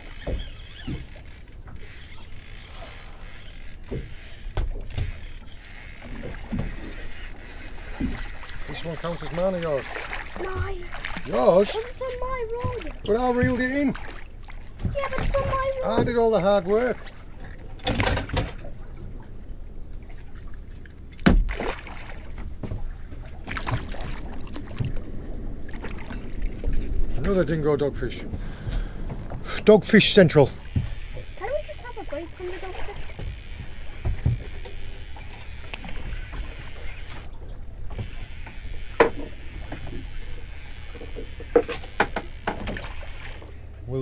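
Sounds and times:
fishing reel gears clicking: 0.0 - 13.9, 30.3 - 43.6
sharp knocks: 41.0 - 42.8.

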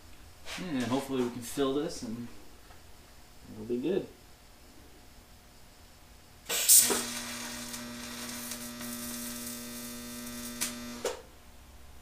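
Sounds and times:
welding arc buzzing hum: 6.1 - 12.0
welding arc strike crackling: 6.5 - 11.3.

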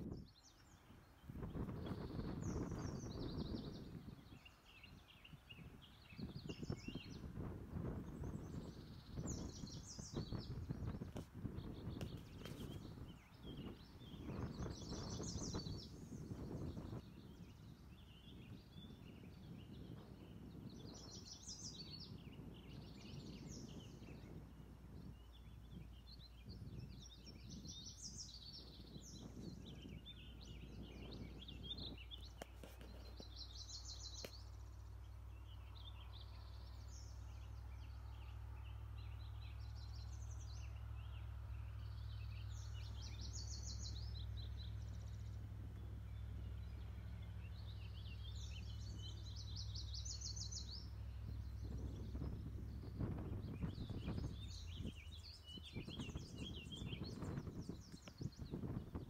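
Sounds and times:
low rumbling noise: 0.0 - 59.0
songbirds singing trilled phrases: 0.0 - 59.0.

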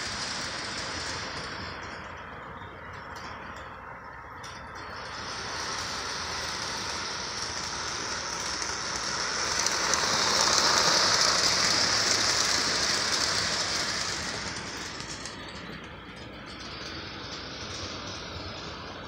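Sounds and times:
toy train running on track: 0.0 - 19.0.

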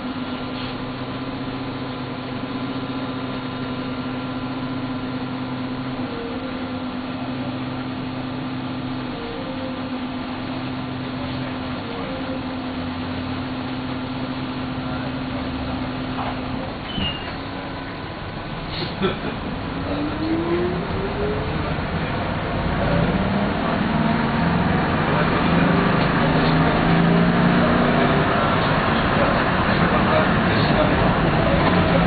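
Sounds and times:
vehicle mechanical hum: 0.0 - 32.0
low drone: 17.4 - 32.0.

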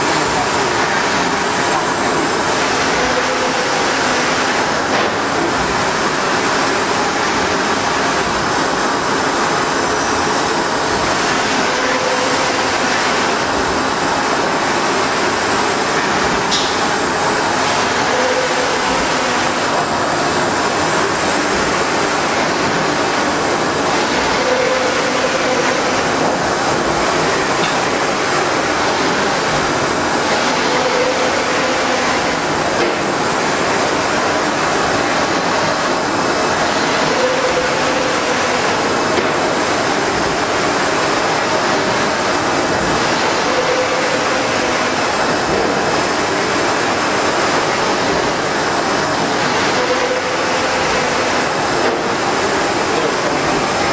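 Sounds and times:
printer mechanical noise: 0.0 - 53.9
printer whine: 0.0 - 53.9.

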